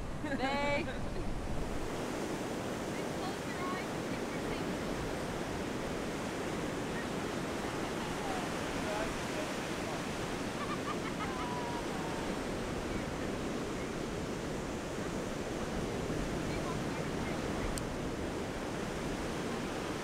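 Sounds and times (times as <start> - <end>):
ocean surf washing onto beach: 0.0 - 20.0.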